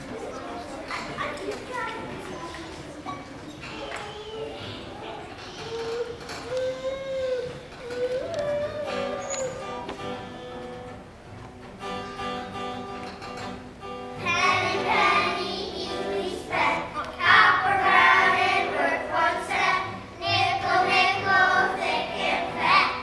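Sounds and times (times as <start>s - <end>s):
guitar accompaniment: 4.0s - 23.0s
children singing: 14.2s - 23.0s.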